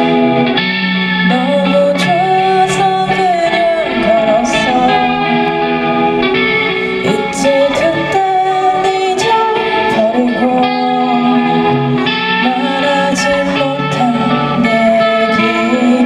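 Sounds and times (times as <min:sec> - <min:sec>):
bass: 0:00.0 - 0:16.0
electric guitars: 0:00.0 - 0:16.0
keyboard: 0:00.0 - 0:16.0
singer holding long notes: 0:00.0 - 0:16.0.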